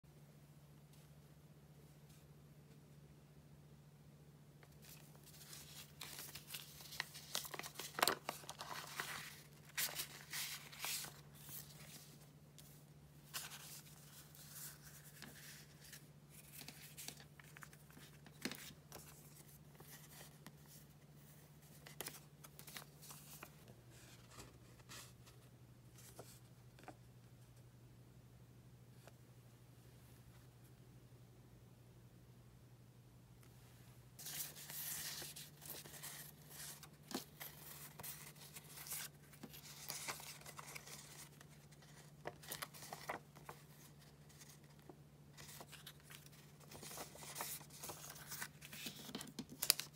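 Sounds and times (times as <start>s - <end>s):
low steady hum: 0.1s - 49.9s
paper and plastic rustling: 4.6s - 20.8s, 34.2s - 49.9s.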